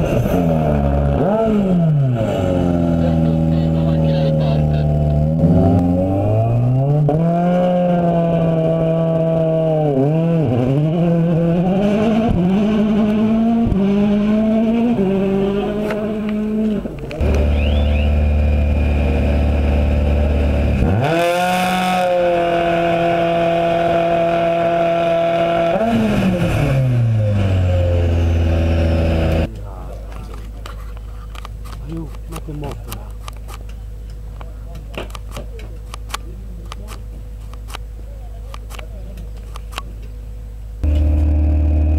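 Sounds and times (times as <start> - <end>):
rally car engine accelerating: 0.0 - 29.6, 40.8 - 41.9.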